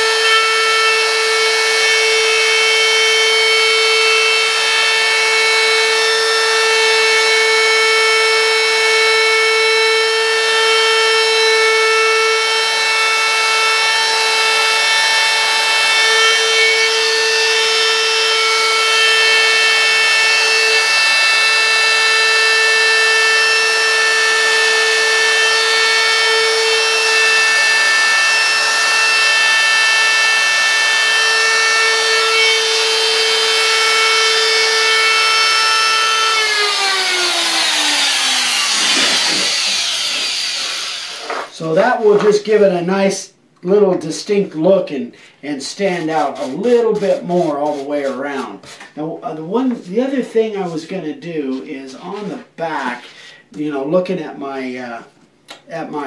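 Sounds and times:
electric router cutting wood: 0.0s - 42.3s.

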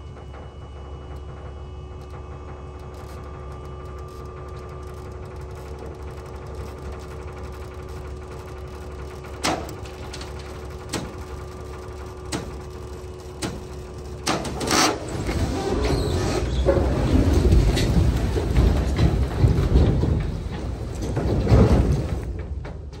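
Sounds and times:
hydraulic pump whining: 0.0s - 19.6s
logs sliding and clattering: 8.8s - 23.0s
logs cracking and knocking: 16.5s - 23.0s.

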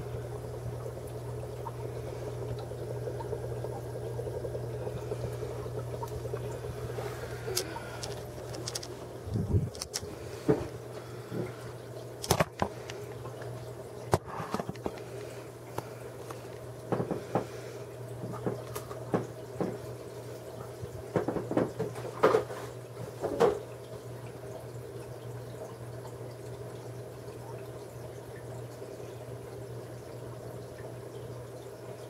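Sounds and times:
aquarium filter hum: 0.0s - 32.0s
water trickling: 0.0s - 32.0s
handling knocks and clicks: 7.5s - 10.7s.

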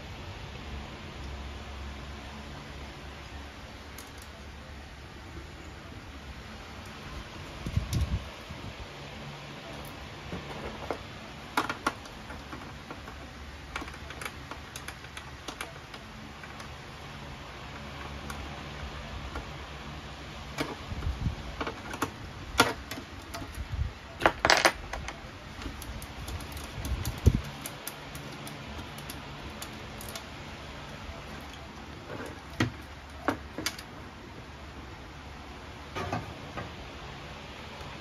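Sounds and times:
tools and metal parts clinking: 24.2s - 30.4s.

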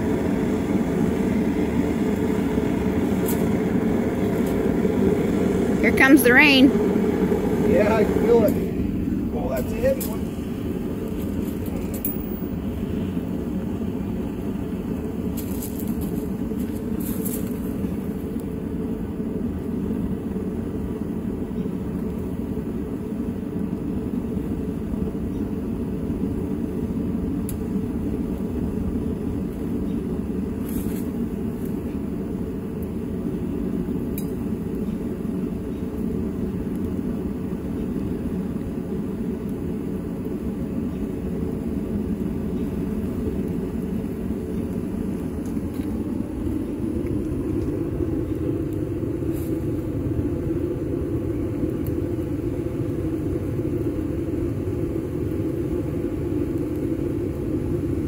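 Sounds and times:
propane burner rushing: 0.0s - 58.0s
light metal clinks: 11.7s - 12.5s.

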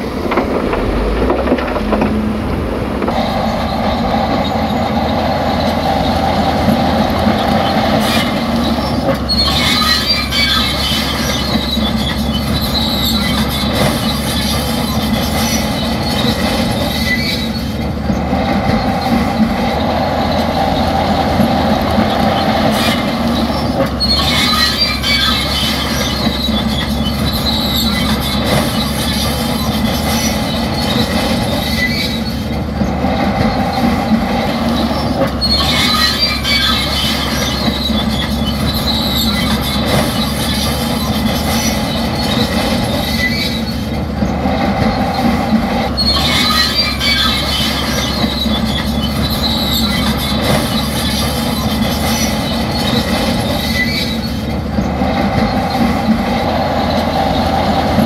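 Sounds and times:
bulldozer diesel engine running: 0.0s - 58.0s
steel tracks squealing and clanking: 0.0s - 58.0s.

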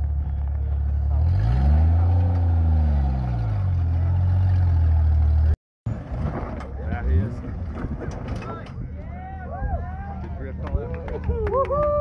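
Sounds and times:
engine running and revving: 0.0s - 5.6s.

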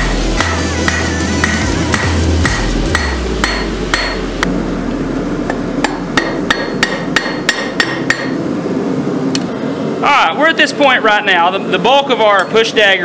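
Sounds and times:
hammer striking metal on anvil: 0.0s - 4.5s, 5.4s - 8.5s.

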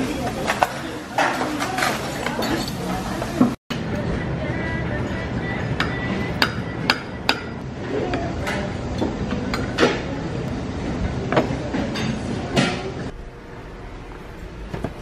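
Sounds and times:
cutlery clinking on ceramic bowls: 0.4s - 2.9s
steady background hum: 2.9s - 15.0s.

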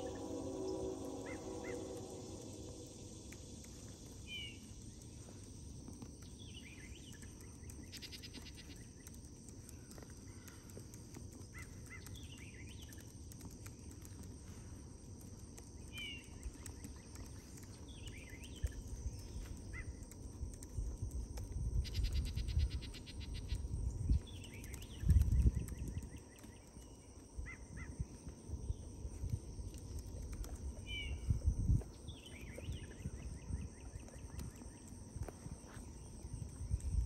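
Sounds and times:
buzzy trill: 0.0s - 4.3s
bird chirping: 0.0s - 5.4s, 21.8s - 28.0s
low outdoor rumble: 0.0s - 37.0s.

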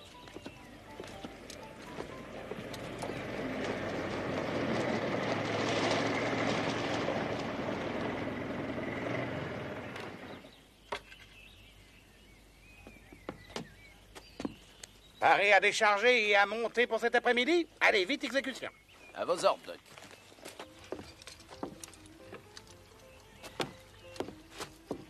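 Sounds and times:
horse-drawn wagon rolling: 0.0s - 10.4s, 20.6s - 25.0s.

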